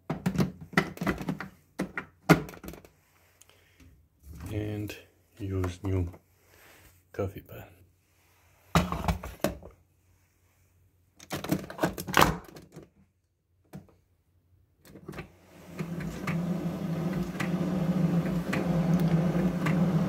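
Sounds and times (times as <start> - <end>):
mug knocking and clatter: 8.8 - 9.6.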